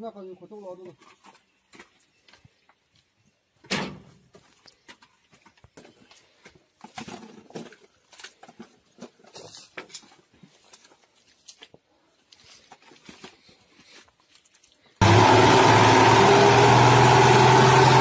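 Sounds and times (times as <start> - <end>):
shovel scraping and chopping mud: 6.4 - 11.7.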